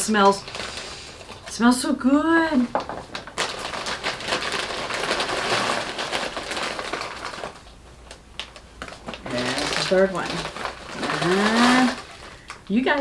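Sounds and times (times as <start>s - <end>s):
plastic bag crinkling: 0.0s - 1.9s, 2.5s - 13.0s
pine cones rustling and clicking: 2.7s - 13.0s.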